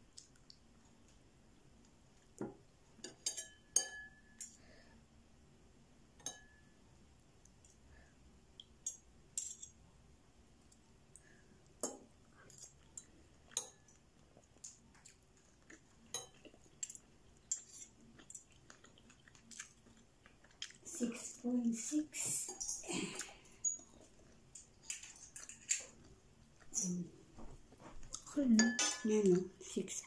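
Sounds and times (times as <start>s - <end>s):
cutlery clinking on ceramic bowl: 3.0s - 4.5s, 6.2s - 6.7s, 13.0s - 13.9s, 16.1s - 17.7s, 28.5s - 29.4s.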